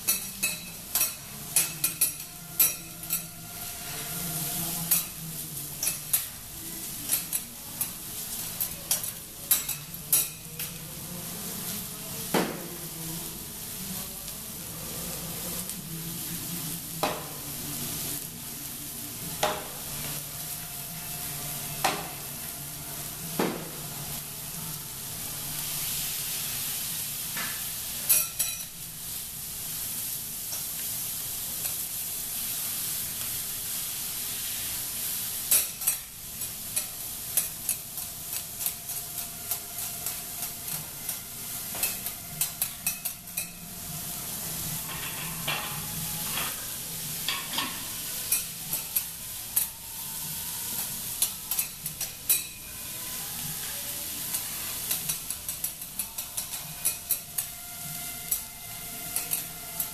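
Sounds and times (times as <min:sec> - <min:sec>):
metal spatulas clacking and scraping: 0:00.0 - 0:03.3, 0:08.6 - 0:10.8, 0:51.2 - 0:52.6, 0:54.3 - 0:57.5, 0:59.2 - 0:59.9
food sizzling on hotplate: 0:00.0 - 0:59.9.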